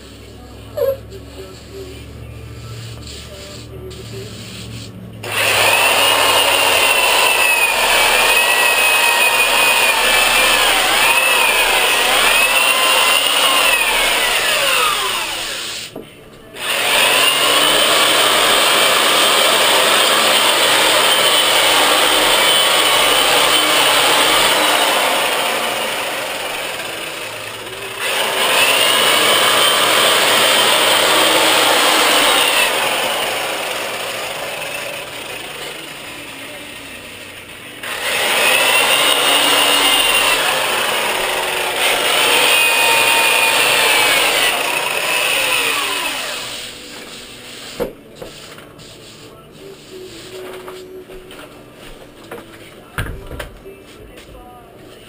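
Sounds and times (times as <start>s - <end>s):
sander motor whine: 5.3s - 15.6s.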